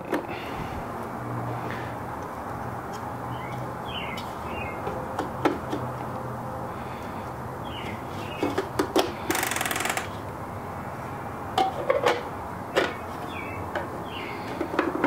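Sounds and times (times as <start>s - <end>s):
birds chirping: 3.2s - 5.1s, 6.6s - 8.6s, 12.8s - 14.7s
plastic grinder hopper clicking: 9.3s - 10.2s.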